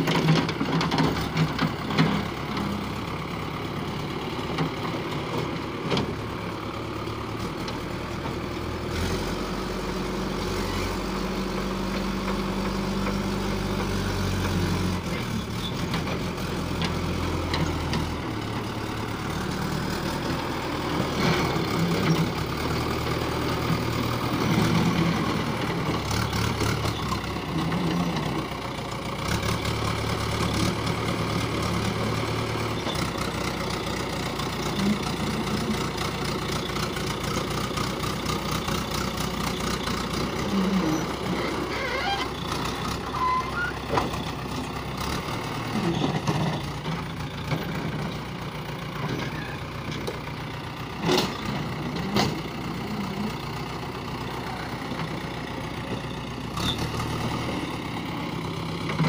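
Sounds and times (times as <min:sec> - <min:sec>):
backhoe diesel engine running: 0:00.0 - 0:59.0.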